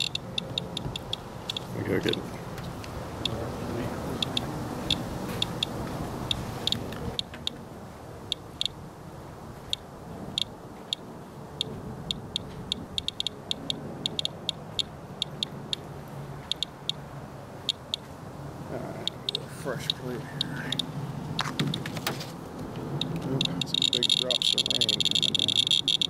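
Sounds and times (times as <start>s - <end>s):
geiger counter clicking: 0.0s - 2.2s, 3.2s - 3.4s, 4.2s - 7.6s, 8.3s - 8.8s, 11.6s - 15.9s, 16.5s - 17.0s, 17.7s - 18.0s, 19.0s - 21.8s, 22.9s - 26.0s.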